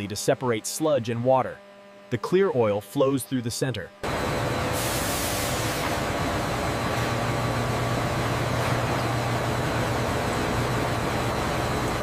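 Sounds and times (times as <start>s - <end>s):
low machinery hum: 0.0s - 12.0s
machinery hiss: 4.5s - 6.1s.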